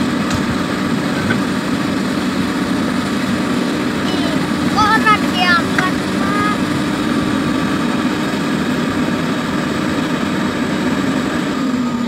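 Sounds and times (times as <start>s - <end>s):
excavator diesel engine drone: 0.0s - 12.0s.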